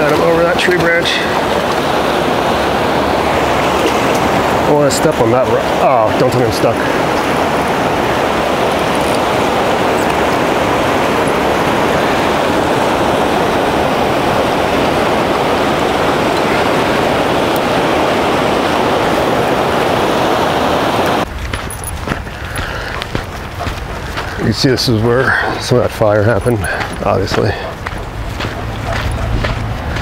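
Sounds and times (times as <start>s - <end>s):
river rushing over rapids: 0.0s - 21.3s.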